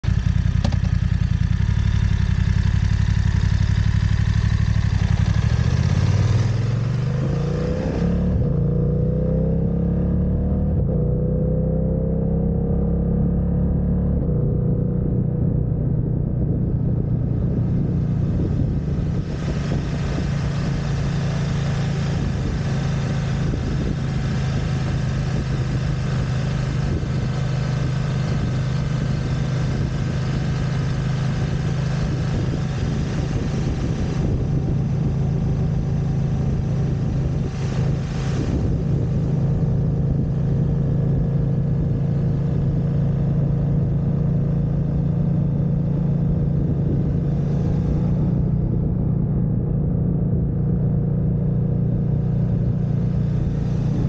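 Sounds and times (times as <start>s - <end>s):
motorcycle engine: 0.0s - 54.0s.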